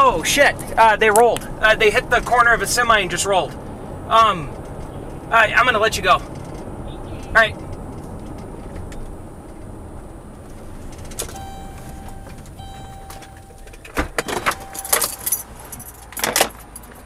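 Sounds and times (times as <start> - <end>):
car cabin and road noise: 0.0 - 17.0
sharp clicks and rattles: 6.2 - 17.0
electronic chime: 11.4 - 15.4.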